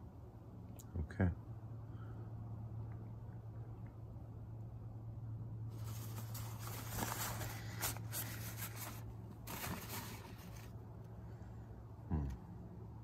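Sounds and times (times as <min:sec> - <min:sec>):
steady low hum: 0:00.0 - 0:13.0
paper towel rustling: 0:05.7 - 0:10.8.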